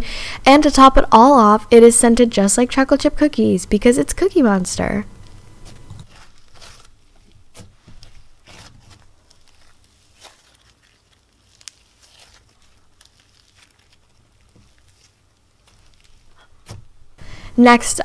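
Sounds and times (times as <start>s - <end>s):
slime crackling and popping: 5.2s - 17.1s.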